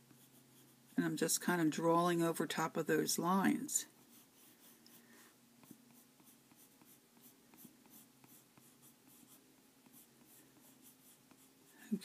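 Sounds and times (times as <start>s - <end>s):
colored pencil scratching paper: 0.0s - 1.2s, 3.9s - 12.0s.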